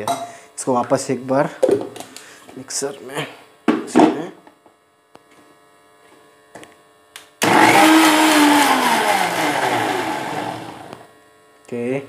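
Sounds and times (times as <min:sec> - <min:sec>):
electric mixer grinder running: 0:07.4 - 0:11.0.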